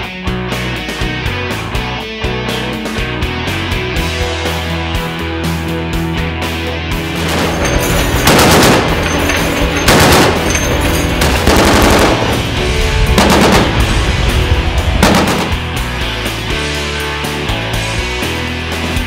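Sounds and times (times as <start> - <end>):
rock music: 0.0 - 19.0
machine gun bursts: 7.2 - 12.5, 13.2 - 13.9, 15.0 - 15.6.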